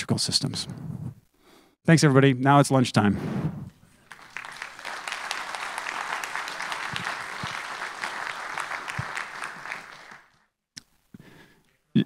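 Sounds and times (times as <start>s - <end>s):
audience applauding: 4.0s - 10.5s.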